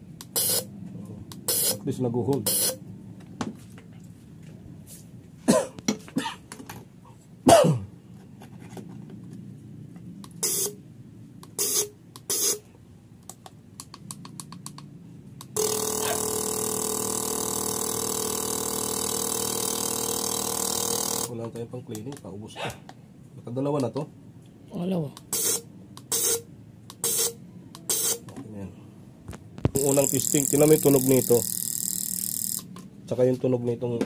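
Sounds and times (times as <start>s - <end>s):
fuel injector buzzing: 0.2s - 0.7s, 1.3s - 1.8s, 2.4s - 2.8s, 10.4s - 10.8s, 11.5s - 12.6s, 15.5s - 21.3s, 25.3s - 28.2s, 29.7s - 32.7s
short sharp bursts: 0.2s - 0.7s, 1.4s - 2.8s, 10.3s - 10.8s, 11.5s - 12.7s, 25.2s - 28.3s.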